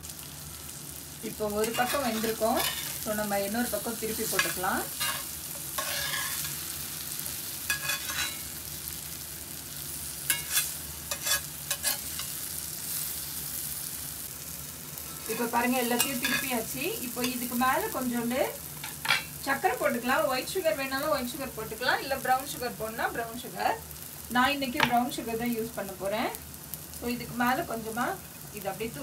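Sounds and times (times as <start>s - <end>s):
butter sizzling in a skillet: 0.0s - 29.0s.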